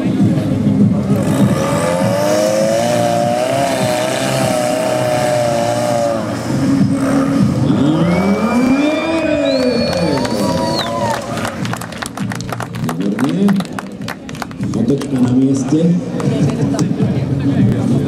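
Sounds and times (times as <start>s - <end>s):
buggy engine revving hard: 0.0s - 10.8s.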